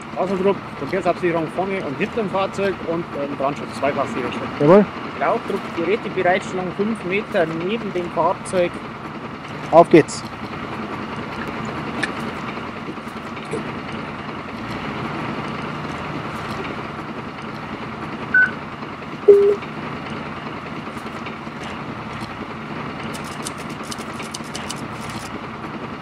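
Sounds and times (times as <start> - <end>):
vehicle engine hum: 0.0 - 26.0
radio keypad beeps: 18.3 - 18.6, 19.3 - 19.6.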